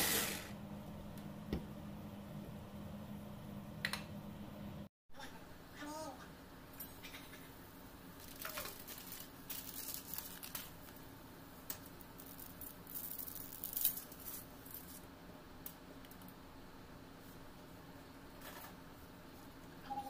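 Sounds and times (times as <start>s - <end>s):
dry spaghetti crackling: 8.2s - 11.0s.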